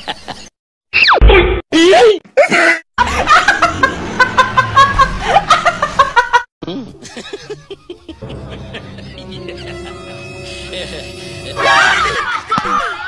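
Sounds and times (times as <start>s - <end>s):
women laughing: 3.0s - 13.0s.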